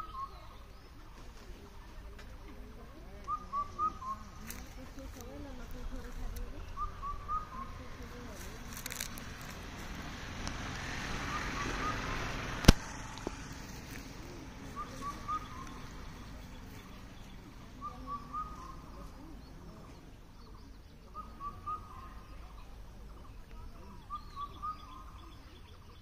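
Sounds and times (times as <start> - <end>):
bird chirping: 0.0 - 1.2, 3.0 - 9.6, 11.0 - 26.0
sharp loud click: 12.6 - 12.9.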